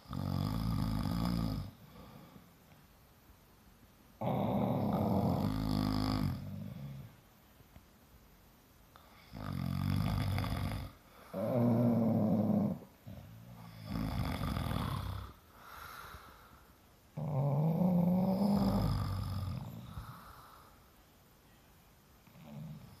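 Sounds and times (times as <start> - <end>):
loud snoring: 0.0 - 2.1, 4.2 - 7.1, 9.2 - 15.4, 17.2 - 20.2
quiet breaths: 0.0 - 23.0.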